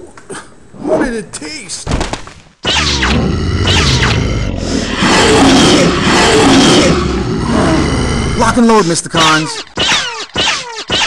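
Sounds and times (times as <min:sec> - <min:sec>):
monster deep roar: 0:02.8 - 0:08.6.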